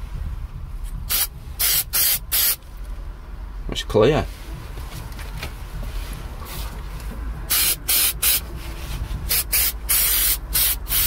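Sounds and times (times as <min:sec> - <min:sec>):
aerosol can spraying: 0:01.1 - 0:02.6, 0:07.5 - 0:08.4, 0:09.3 - 0:11.0.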